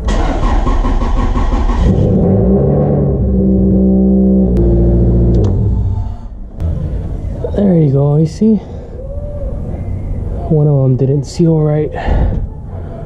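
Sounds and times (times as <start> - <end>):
engine starter cranking: 0.0 - 2.2
car engine idling: 0.0 - 9.0.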